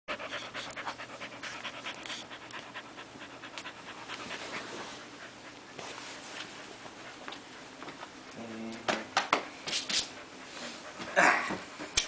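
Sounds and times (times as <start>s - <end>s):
dog panting: 0.1s - 8.4s, 10.0s - 11.2s.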